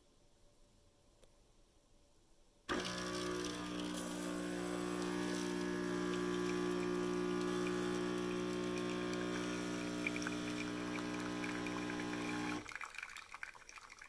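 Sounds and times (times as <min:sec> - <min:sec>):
espresso machine pump buzzing: 0:02.7 - 0:12.7.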